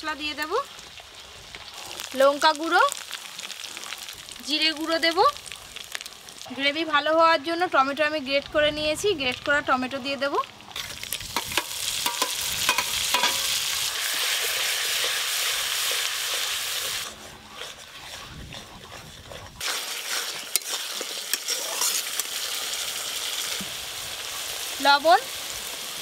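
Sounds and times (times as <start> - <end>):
tomato sizzling in hot oil: 0.0 - 26.0
metal spatula scraping a wok: 10.8 - 22.6.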